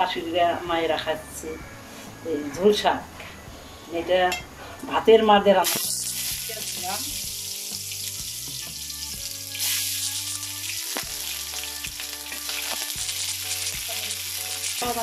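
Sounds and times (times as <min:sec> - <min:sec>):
onions sizzling in hot oil: 0:05.6 - 0:15.0.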